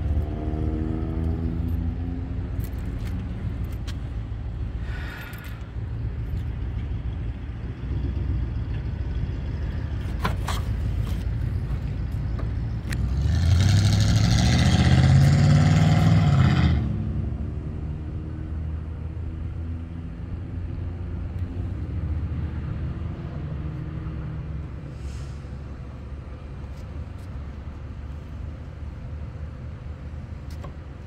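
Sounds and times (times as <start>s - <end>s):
car engine revving: 12.9s - 18.1s.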